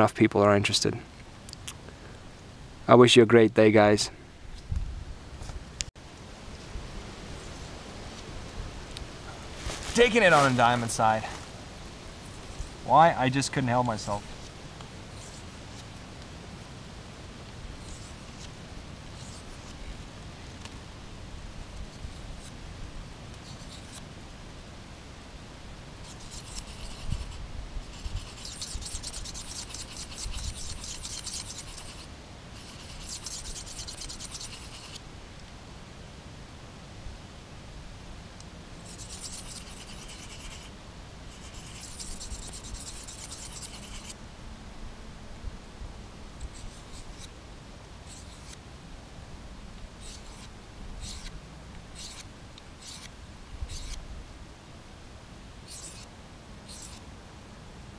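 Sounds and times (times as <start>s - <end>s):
knife scraping on sharpening stone: 27.9s - 35.0s, 55.7s - 56.1s, 56.7s - 57.0s.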